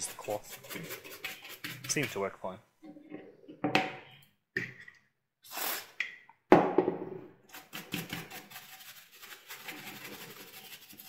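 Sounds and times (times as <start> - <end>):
stiff brush scrubbing plastic: 0.0 - 2.4, 7.5 - 11.0.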